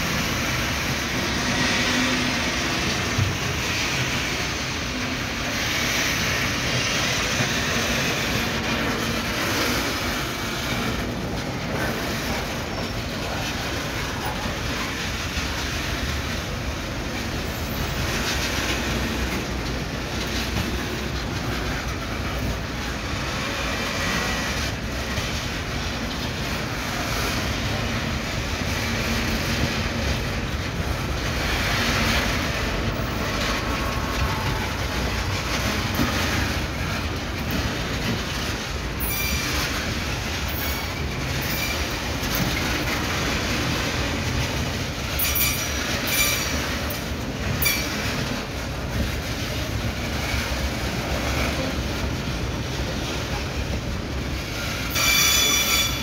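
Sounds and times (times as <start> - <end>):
train wheels rumbling on rails: 0.0 - 56.0
wheel squeal: 39.0 - 39.9, 40.5 - 42.4, 45.2 - 46.8, 54.5 - 56.0.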